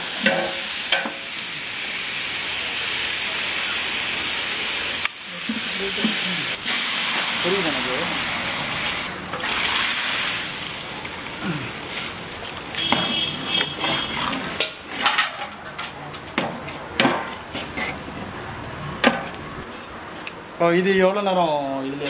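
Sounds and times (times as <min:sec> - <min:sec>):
steam hissing and sizzling: 0:00.0 - 0:12.9.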